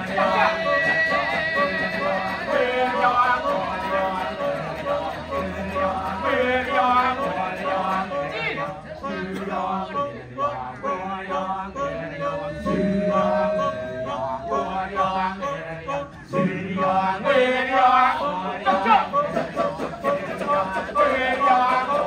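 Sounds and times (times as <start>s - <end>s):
low vocal drone: 0.0s - 22.0s
men chanting in interlocking rhythms: 0.0s - 22.0s
voice holding a long note: 9.9s - 17.0s.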